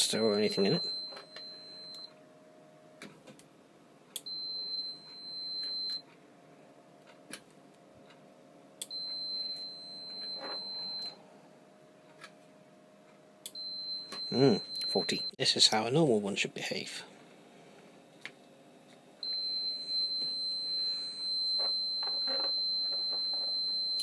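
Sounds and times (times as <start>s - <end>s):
high-pitched multimeter beep: 0.0s - 2.1s, 4.2s - 6.0s, 8.8s - 11.2s, 13.5s - 15.4s, 19.2s - 24.0s.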